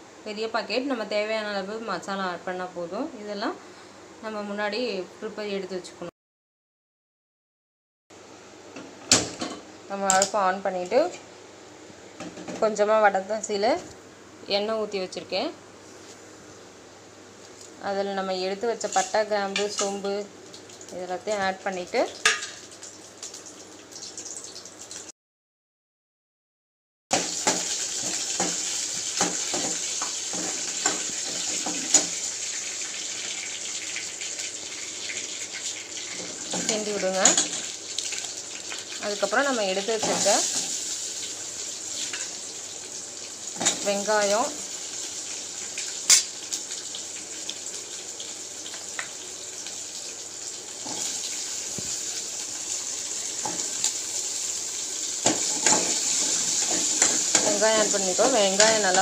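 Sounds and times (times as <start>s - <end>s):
spices sizzling in hot oil: 17.4s - 25.1s, 27.1s - 59.0s.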